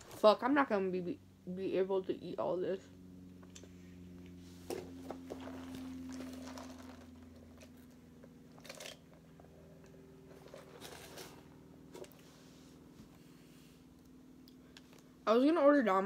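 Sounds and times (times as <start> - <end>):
steady low hum: 0.0 - 16.0
food crunching and rustling: 4.8 - 9.5, 10.2 - 12.2.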